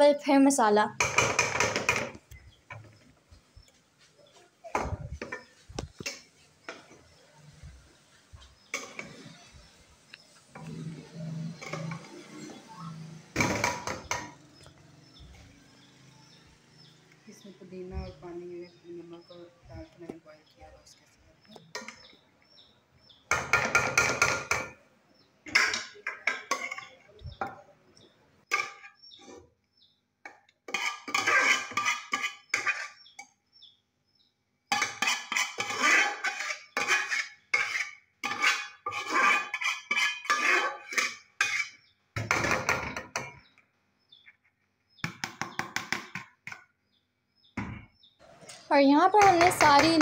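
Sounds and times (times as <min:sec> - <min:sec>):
metal spoon scraping a metal pot: 0:10.5 - 0:13.0, 0:25.5 - 0:27.5, 0:30.7 - 0:33.2, 0:34.7 - 0:42.6.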